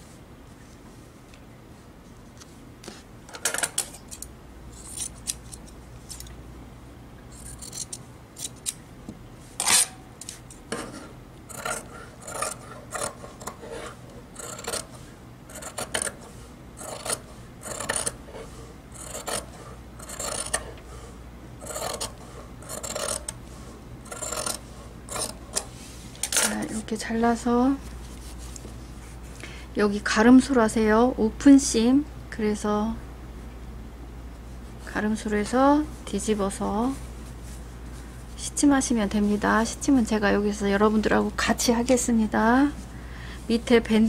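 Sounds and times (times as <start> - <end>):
scissors snipping fabric: 16.8 - 18.2, 19.0 - 20.6, 21.6 - 23.4.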